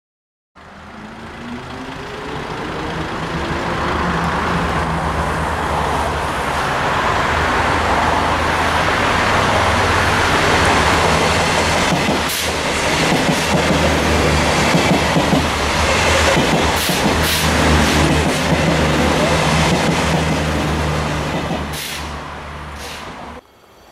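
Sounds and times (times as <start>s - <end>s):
diesel railcar engine drone: 0.6s - 23.9s
train wheels clicking: 10.2s - 22.2s.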